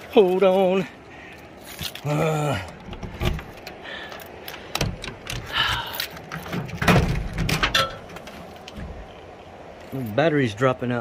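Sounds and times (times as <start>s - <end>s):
hatch latch clicks and knocks: 4.7s - 5.5s.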